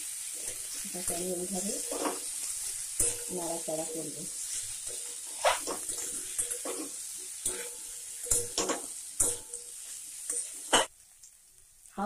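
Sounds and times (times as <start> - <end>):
oil sizzling: 0.0 - 12.0
metal spatula scraping a pan: 0.2 - 10.9.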